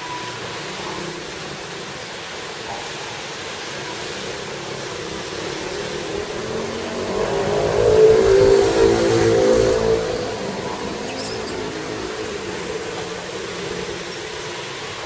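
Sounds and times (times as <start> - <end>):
traffic noise: 0.0 - 15.0
vehicle engine approaching: 5.0 - 15.0.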